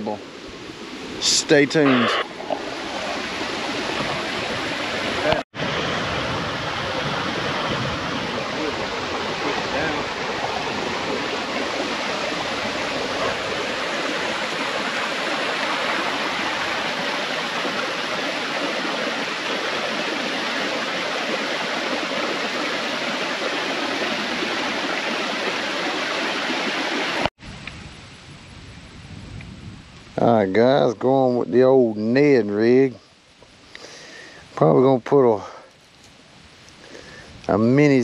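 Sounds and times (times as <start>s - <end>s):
water rushing through ditch: 0.0s - 27.3s.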